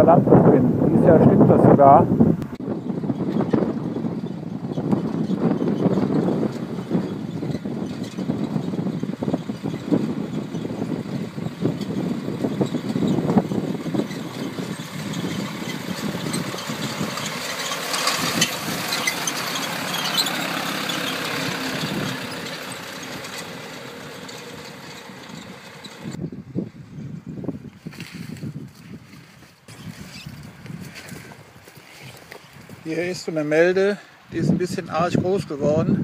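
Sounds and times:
tractor engine running: 0:02.4 - 0:26.3.

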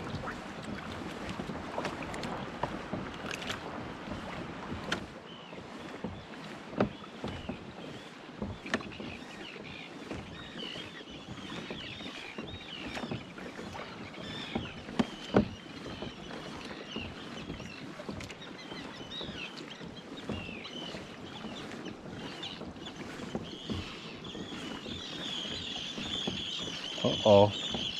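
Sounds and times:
knocks on boat: 0:00.0 - 0:27.9
water lapping against hull: 0:00.0 - 0:27.9.

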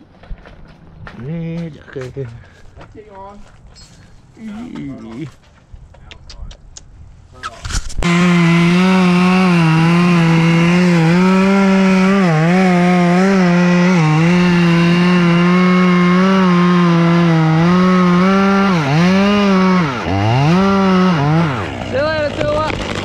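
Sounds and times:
chainsaw cutting wood: 0:07.7 - 0:23.0.

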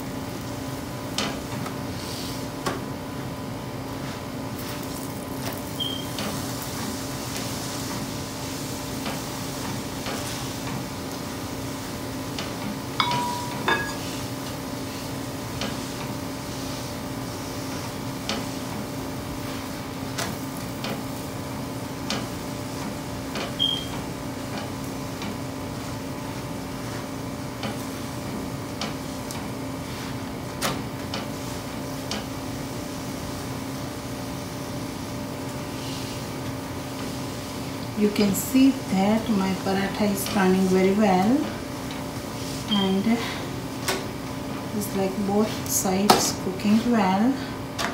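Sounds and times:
kitchen hum: 0:00.0 - 0:47.9
spatula tapping griddle pan: 0:13.0 - 0:14.1.

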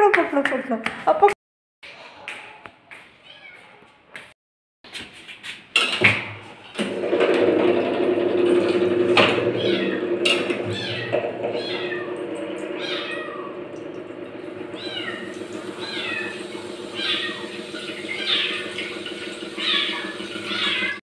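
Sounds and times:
kitten meowing: 0:10.7 - 0:12.1, 0:12.8 - 0:13.6, 0:14.8 - 0:16.4, 0:17.0 - 0:17.6.

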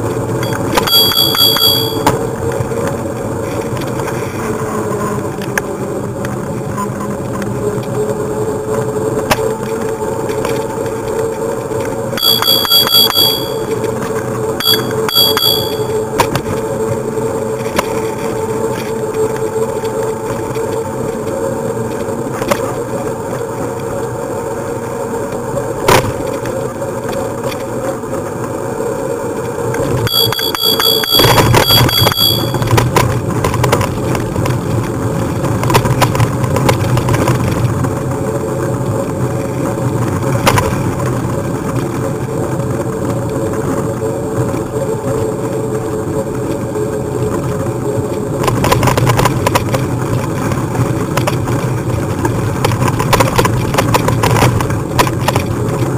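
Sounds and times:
bicycle bell trill: 0:00.4 - 0:02.1, 0:12.2 - 0:13.7, 0:14.6 - 0:16.0, 0:30.1 - 0:32.7.

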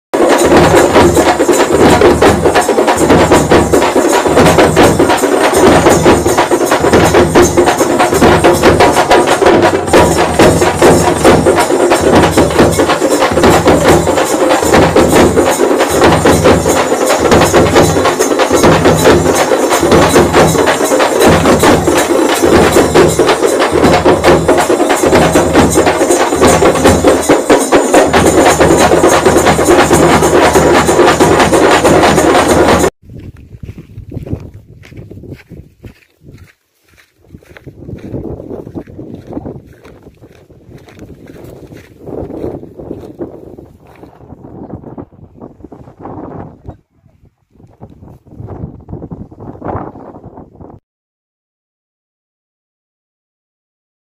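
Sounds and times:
music with driving beat: 0:00.2 - 0:32.9.

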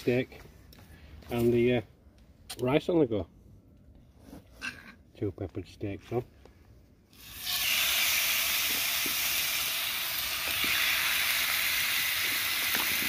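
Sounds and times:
steaks sizzling in a frying pan: 0:07.2 - 0:13.0.

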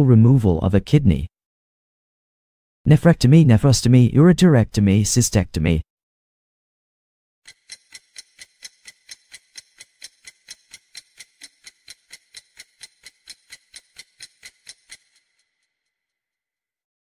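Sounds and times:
fast clock ticking: 0:07.5 - 0:15.5.

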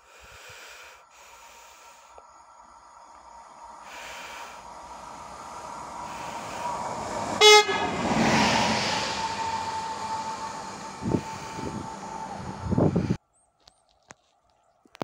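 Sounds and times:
electric locomotive rumbling past: 0:02.3 - 0:13.2
train horn toot: 0:07.3 - 0:12.9.

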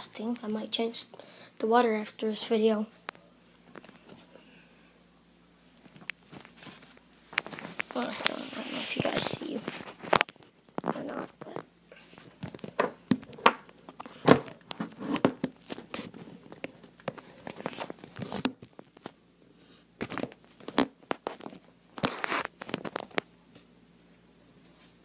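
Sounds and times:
rustling and crinkling from handling: 0:05.7 - 0:23.8.

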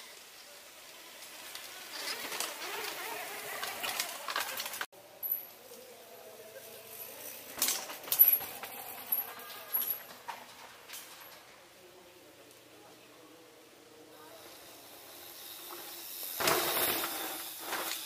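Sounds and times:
bike tyres crunching on dirt: 0:00.8 - 0:04.9
bike rattling: 0:00.9 - 0:11.8, 0:14.2 - 0:18.0.

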